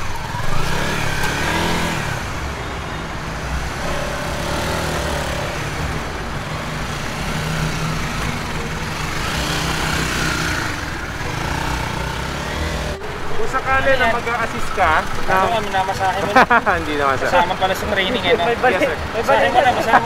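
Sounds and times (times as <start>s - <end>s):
motorcycle engine running at low revs: 3.7s - 13.1s.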